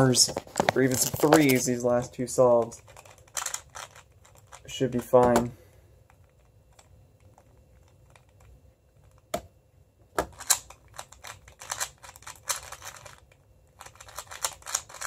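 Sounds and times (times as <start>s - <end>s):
plastic puzzle cube clicking: 2.8s - 4.6s, 10.3s - 15.0s.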